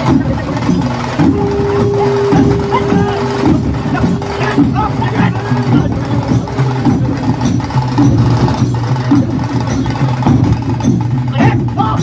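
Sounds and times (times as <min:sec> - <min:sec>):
music with percussive beat: 0:00.0 - 0:12.0
repeating bass line: 0:01.2 - 0:06.4.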